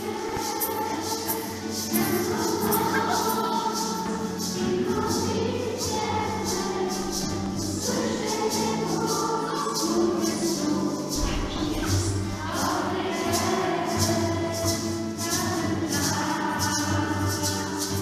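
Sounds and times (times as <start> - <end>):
choir singing: 0.0 - 18.0.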